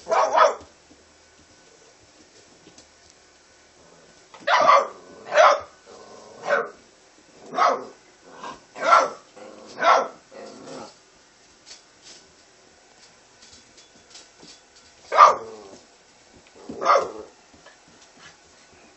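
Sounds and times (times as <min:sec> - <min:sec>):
puppies barking: 0:00.0 - 0:00.7, 0:04.4 - 0:05.8, 0:06.4 - 0:06.8, 0:07.4 - 0:08.0, 0:08.8 - 0:10.2, 0:15.1 - 0:15.8, 0:16.7 - 0:17.4.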